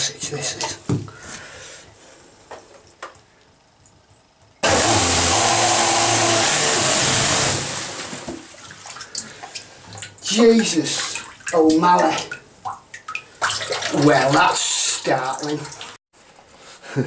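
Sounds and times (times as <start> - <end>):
electric motor hum: 4.6 - 8.2
churning water: 5.4 - 16.0
sloshing water: 7.6 - 16.0.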